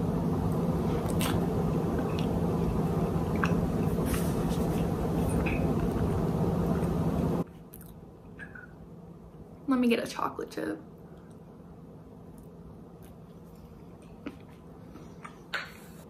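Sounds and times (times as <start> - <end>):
steady hum: 0.0 - 16.0
chewing and mouth clicks: 1.0 - 2.4, 3.3 - 7.0, 7.7 - 8.7.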